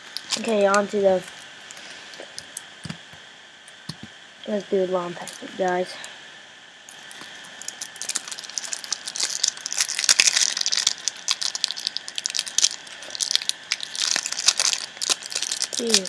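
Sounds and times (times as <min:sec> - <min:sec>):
foil wrapper crinkling and tearing: 0:00.0 - 0:01.8, 0:06.9 - 0:16.0.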